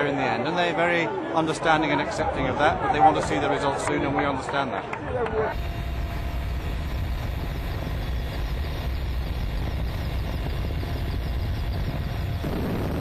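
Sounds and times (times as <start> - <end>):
helicopter engine and rotor drone: 5.5 - 13.0.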